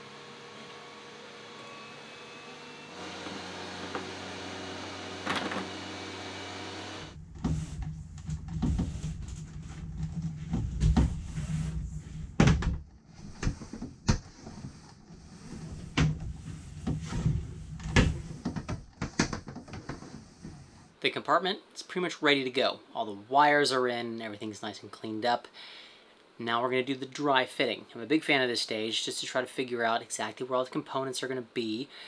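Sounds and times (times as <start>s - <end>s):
knocks and clicks of cables: 17.8s - 20.1s.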